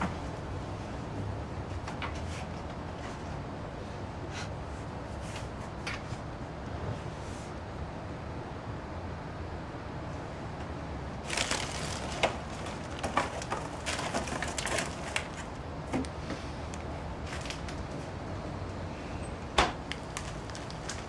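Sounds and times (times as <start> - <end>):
plastic bags crinkling: 11.2 - 15.6, 17.2 - 17.8, 19.8 - 21.0
packages knocking on shelving: 11.3 - 16.1.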